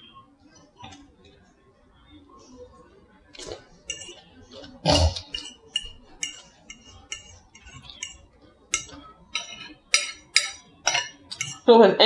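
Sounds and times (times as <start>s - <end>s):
fork scraping a ceramic plate: 3.4s - 11.7s.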